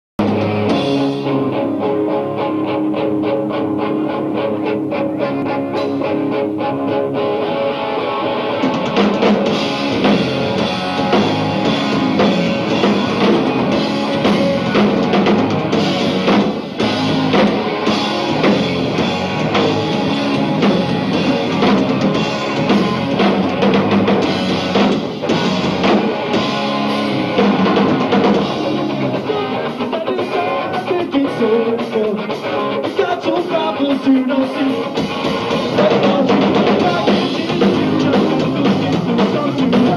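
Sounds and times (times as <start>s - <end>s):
drum kit: 0.2s - 7.6s, 8.4s - 39.9s
punk rock band playing live: 0.2s - 39.9s.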